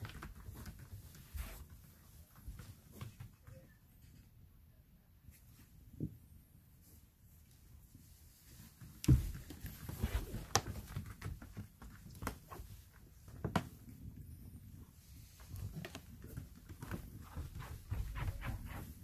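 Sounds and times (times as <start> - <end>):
dog paws on wooden floor: 0.0 - 3.6, 8.5 - 19.0.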